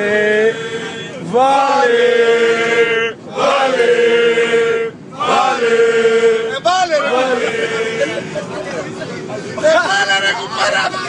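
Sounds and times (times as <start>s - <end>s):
men chanting in unison: 0.0s - 11.0s.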